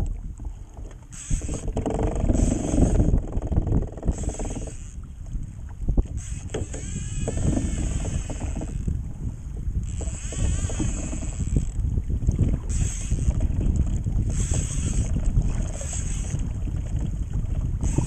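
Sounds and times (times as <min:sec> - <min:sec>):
wind rumble on microphone: 0:00.0 - 0:18.0
fishing reel gears whirring: 0:00.7 - 0:05.3, 0:05.9 - 0:09.0, 0:09.8 - 0:11.9, 0:12.6 - 0:16.8, 0:17.8 - 0:18.0.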